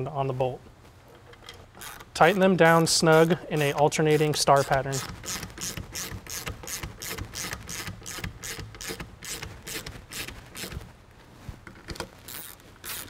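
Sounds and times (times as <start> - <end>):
hand ratchet clicking: 1.7 - 2.4, 3.1 - 10.8, 12.0 - 13.0.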